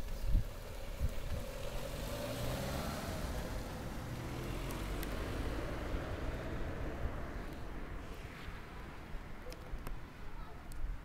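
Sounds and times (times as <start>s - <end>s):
car engine humming: 0.0s - 9.8s.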